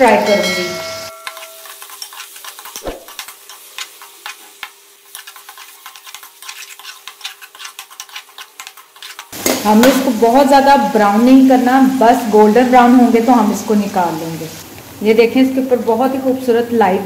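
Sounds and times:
onions sizzling in oil: 0.0 - 17.0
metal spoon scraping a pan: 0.4 - 10.2.

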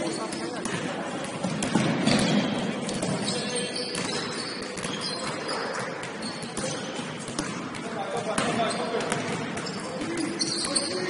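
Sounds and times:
players' voices: 0.0 - 11.0
basketball bouncing on court: 0.1 - 11.0.

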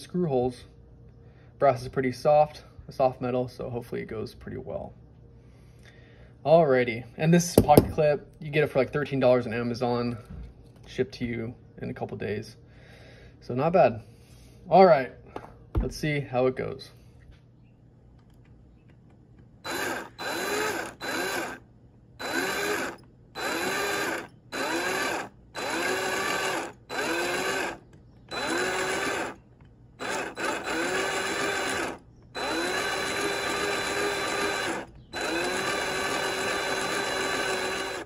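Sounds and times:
power drill whining in bursts: 19.6 - 38.0.

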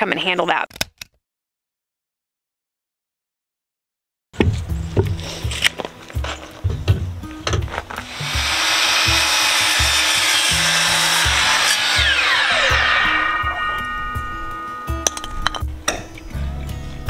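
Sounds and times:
miter saw cutting wood: 8.0 - 15.0
saw blade winding down: 8.0 - 15.3.

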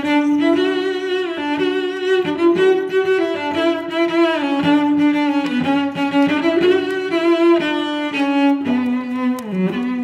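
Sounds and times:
bowed string melody: 0.0 - 10.0.

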